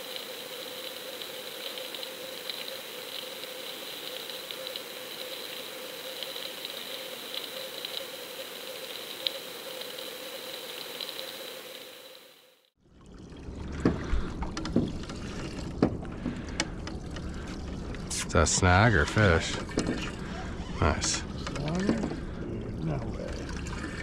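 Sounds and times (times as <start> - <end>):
faint crackling ticks: 0.0 - 12.2
hum and whine: 13.4 - 24.0.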